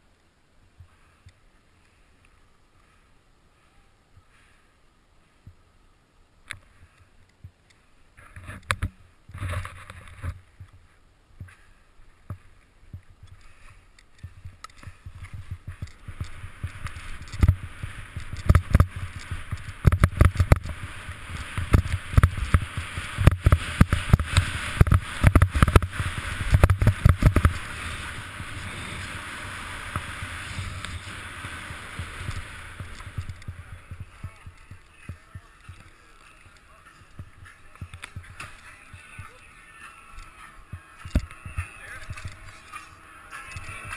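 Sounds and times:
skis thumping over snow bumps: 11.4s - 39.4s
skis running over snow: 11.4s - 43.9s
wind rushing over microphone: 14.2s - 35.9s.

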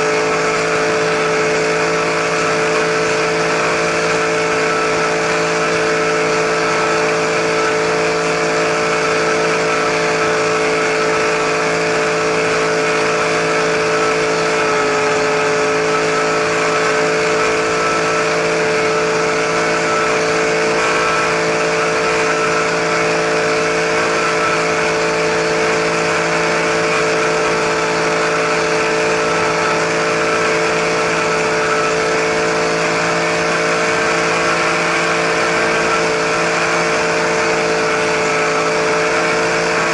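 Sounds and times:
helicopter motor whine: 0.0s - 39.9s.

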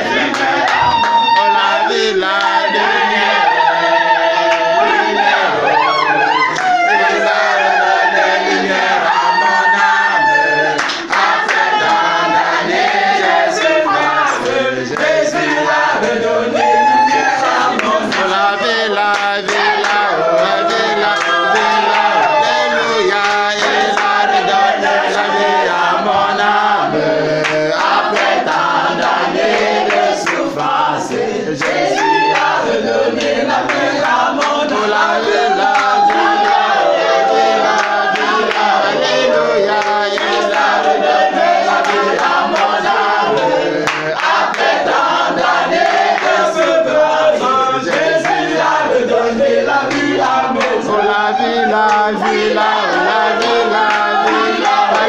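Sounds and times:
women's voices singing: 0.0s - 55.0s
hand clapping: 0.1s - 1.6s, 10.8s - 12.0s, 17.5s - 22.3s, 23.1s - 24.4s, 27.4s - 32.6s, 33.2s - 36.7s, 37.8s - 38.8s, 39.7s - 46.8s, 49.8s - 50.9s, 51.7s - 55.0s.

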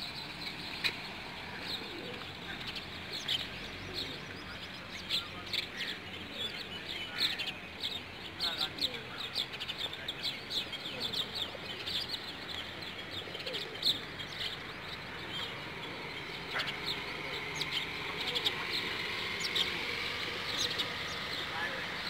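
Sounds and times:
birds chirping: 0.0s - 22.0s
pigeons cooing: 0.8s - 4.4s, 10.8s - 22.0s.

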